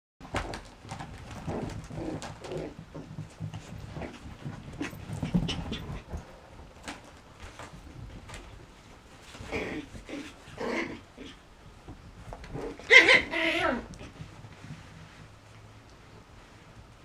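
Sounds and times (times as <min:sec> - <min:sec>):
puppies scrabbling: 0:00.2 - 0:15.3
puppy whines: 0:12.5 - 0:14.1.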